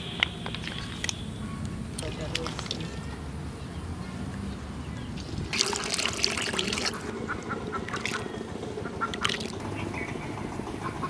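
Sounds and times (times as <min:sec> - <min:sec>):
ducks quacking: 0:06.7 - 0:10.1.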